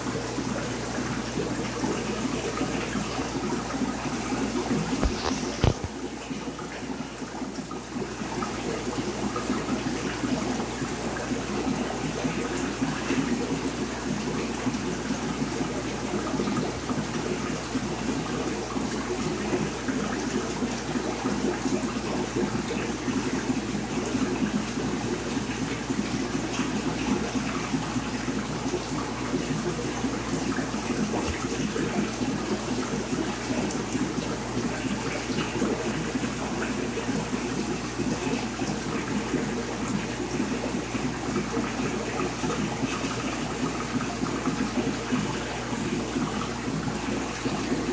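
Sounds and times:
running splashing water: 0:00.0 - 0:47.9.

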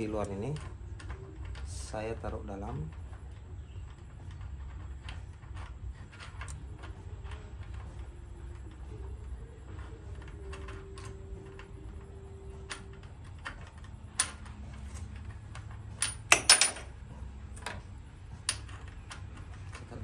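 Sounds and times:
small metal parts clinking: 0:12.6 - 0:17.0.

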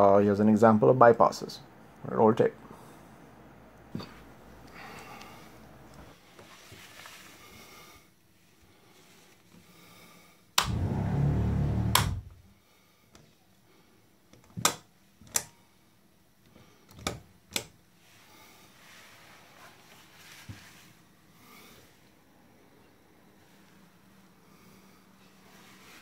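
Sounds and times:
loud low hum: 0:10.7 - 0:12.4
switches clicking: 0:11.8 - 0:12.3, 0:14.4 - 0:15.5.

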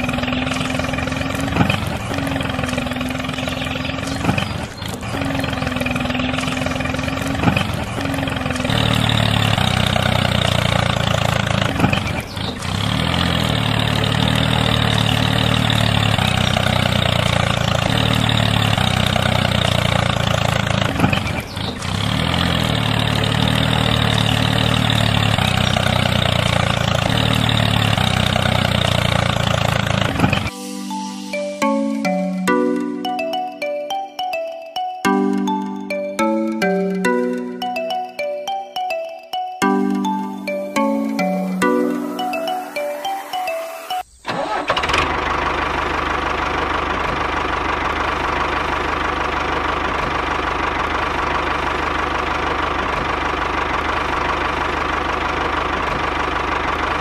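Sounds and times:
model tractor engine running: 0:00.0 - 0:30.5, 0:44.2 - 0:57.0.

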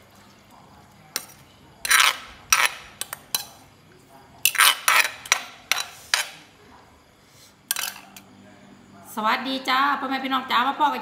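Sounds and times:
spoon scraping clay mortar: 0:01.2 - 0:03.5, 0:04.5 - 0:06.4.

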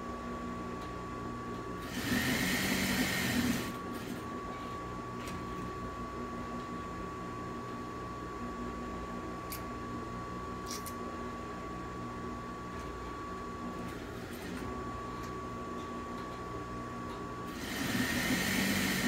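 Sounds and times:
hum with high tone: 0:00.0 - 0:19.0
sewing machine stitching: 0:01.8 - 0:04.2, 0:17.5 - 0:19.0.

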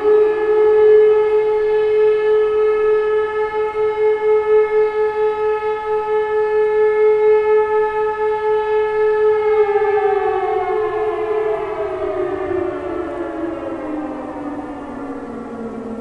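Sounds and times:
siren wailing and winding down: 0:09.2 - 0:16.0.

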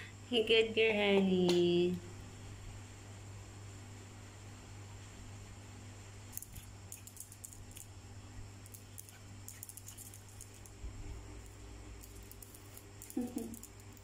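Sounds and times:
steady low hum: 0:00.0 - 0:14.0
dog claws clicking on tiles: 0:06.4 - 0:07.9, 0:08.6 - 0:10.8, 0:11.4 - 0:14.0.

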